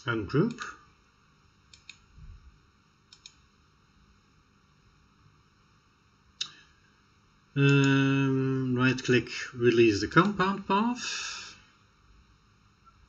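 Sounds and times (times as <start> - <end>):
computer mouse clicking: 1.7 - 2.0, 3.1 - 3.4.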